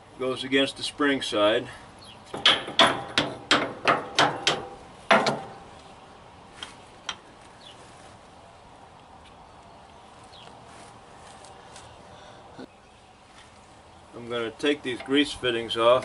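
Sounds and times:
metal parts tapping together: 0:02.3 - 0:05.6.

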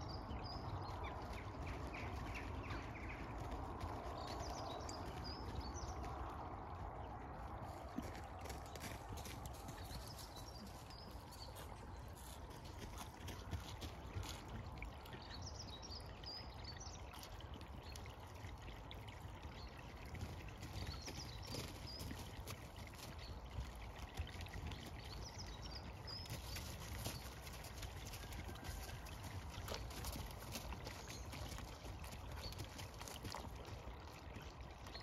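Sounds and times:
sheep drinking from a puddle: 0:00.0 - 0:35.0
small birds chirping: 0:08.5 - 0:18.0.

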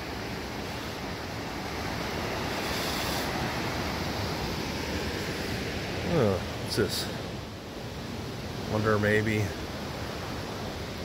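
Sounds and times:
river rapids rushing: 0:00.0 - 0:11.0.

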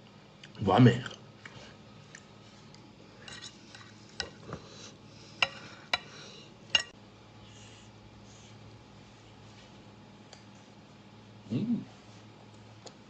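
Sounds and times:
knife scraping a plate: 0:03.2 - 0:04.4.

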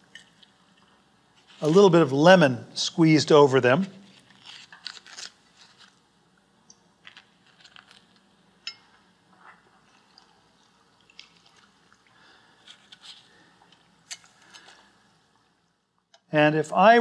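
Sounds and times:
crisp pastry crackles and clicks: 0:04.0 - 0:06.0, 0:07.0 - 0:08.3, 0:11.0 - 0:12.0, 0:12.6 - 0:14.9.

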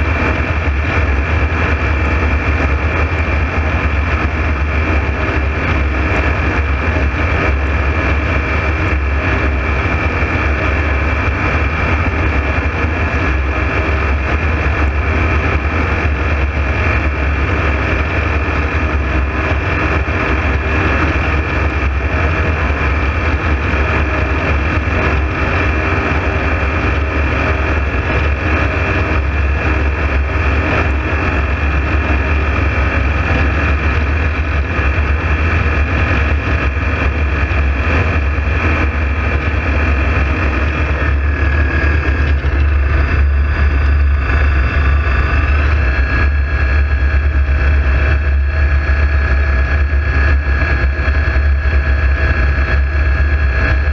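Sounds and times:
aircraft engine and propeller drone: 0:00.0 - 0:53.9
wind rush: 0:00.0 - 0:53.9.

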